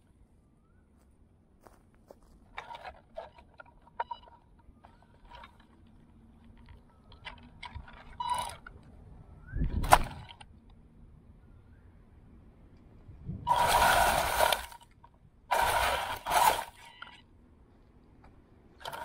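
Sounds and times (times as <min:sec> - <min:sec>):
handling clicks and rustles: 0:01.7 - 0:09.1.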